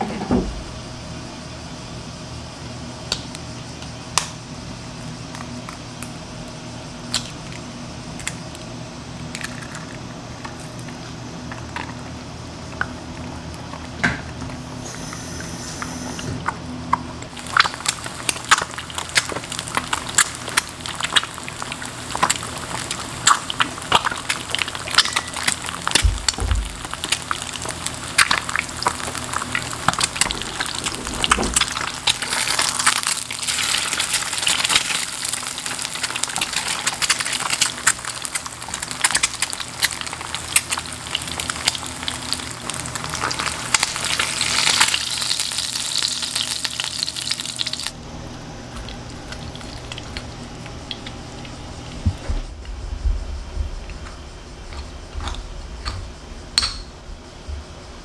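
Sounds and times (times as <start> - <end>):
egg frying crackle: 5.0 - 48.0, 48.7 - 52.2
oil popping: 17.2 - 48.0
low hum: 47.9 - 58.0.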